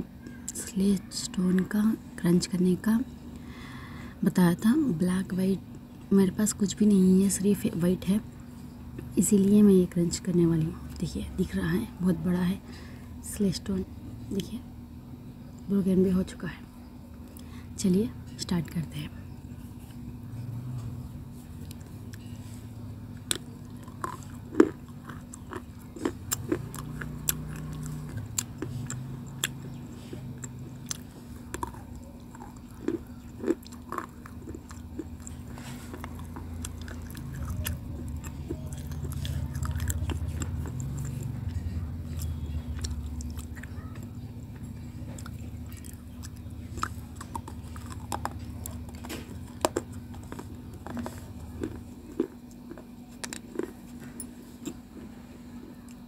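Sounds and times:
steady low hum: 0:00.0 - 0:56.0
teeth crunching stone: 0:23.2 - 0:41.6, 0:44.5 - 0:53.8.

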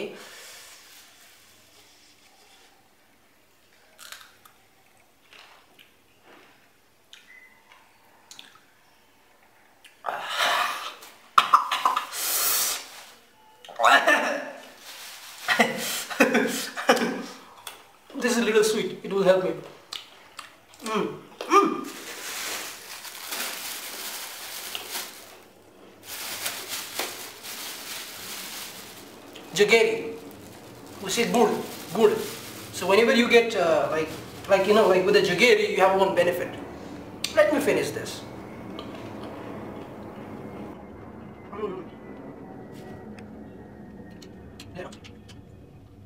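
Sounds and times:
harsh hissing breaths: 0:00.2 - 0:01.9, 0:12.1 - 0:13.0
person chewing: 0:04.0 - 0:07.3, 0:19.9 - 0:21.5
plastic bag rustling and crinkling: 0:14.6 - 0:16.5, 0:21.8 - 0:36.4.

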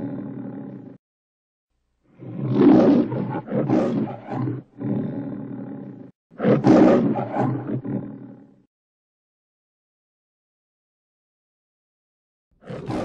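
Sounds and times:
lion roaring: 0:00.0 - 0:01.0, 0:02.1 - 0:08.7, 0:12.6 - 0:13.0.

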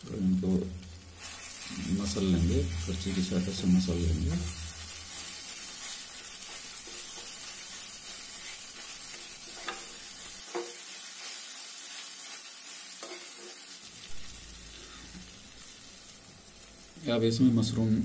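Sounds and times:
masala sizzling in pan: 0:00.0 - 0:18.0
spatula stirring and mashing: 0:02.8 - 0:13.7.

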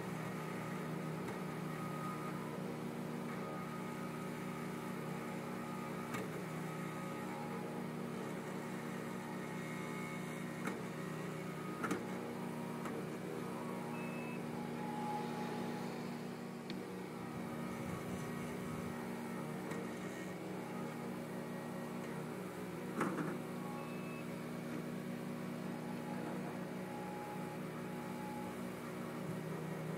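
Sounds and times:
loader engine drone: 0:00.0 - 0:29.9
generator running: 0:08.9 - 0:29.6.

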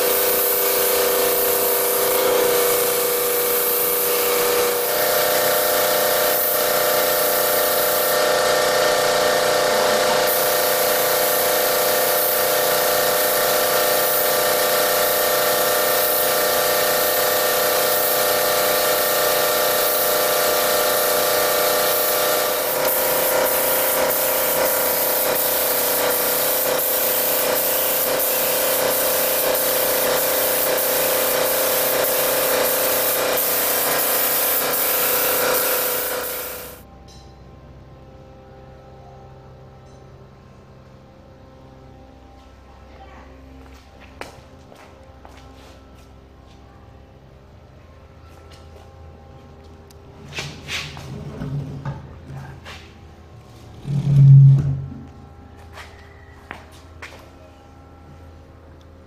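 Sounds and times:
spray gun hissing: 0:00.0 - 0:36.8
machine hum: 0:00.0 - 0:50.3, 0:51.0 - 0:59.0.

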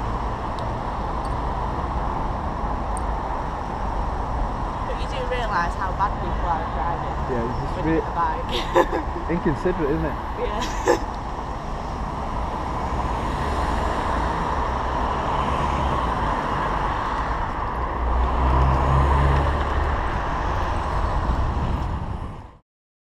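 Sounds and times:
road traffic: 0:00.0 - 0:22.6
wind rumble on microphone: 0:11.0 - 0:22.6.

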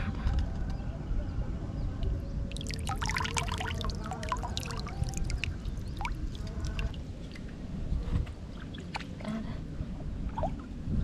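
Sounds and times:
small drips and plops: 0:02.5 - 0:07.5
water trickling and dripping: 0:02.5 - 0:07.6.

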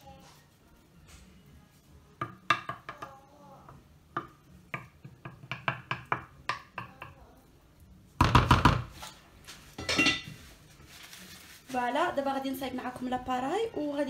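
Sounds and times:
wooden spoon knocking on ceramic dish: 0:03.7 - 0:07.2.

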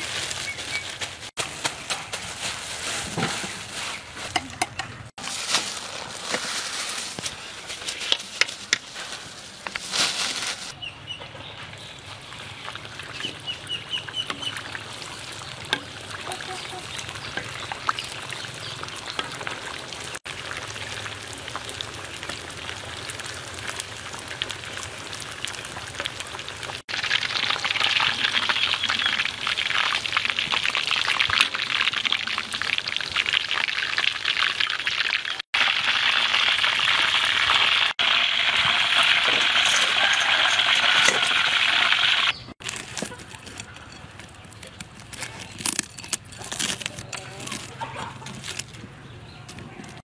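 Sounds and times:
oil sizzling and crackling: 0:11.7 - 0:43.0.

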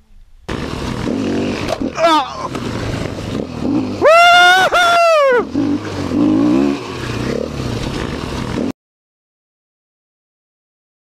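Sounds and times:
dirt bike engine running: 0:00.4 - 0:08.7
person whooping: 0:02.0 - 0:02.5, 0:04.0 - 0:05.5.

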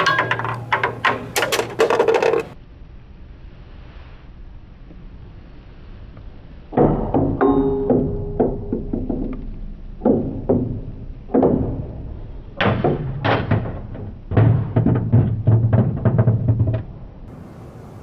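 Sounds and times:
ball bouncing down stairs: 0:00.0 - 0:02.6, 0:06.8 - 0:17.2
ball rattling in plastic toy: 0:00.0 - 0:02.6.

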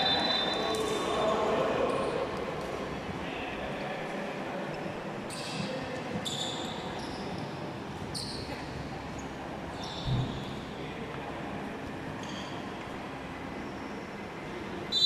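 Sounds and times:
shoes squeaking on court: 0:08.1 - 0:10.4.

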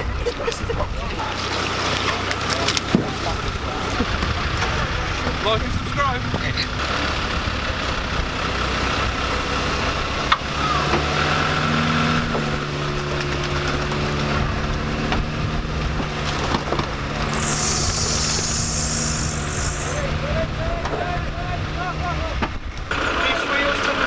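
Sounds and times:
vehicle engine running: 0:01.1 - 0:24.0
brief hiss: 0:17.3 - 0:20.0.

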